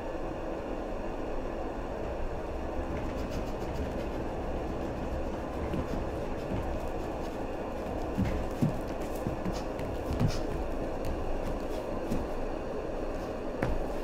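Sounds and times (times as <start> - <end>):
steady low rumble: 0.0 - 14.0
bare feet thudding on floor: 5.5 - 12.4, 13.6 - 14.0.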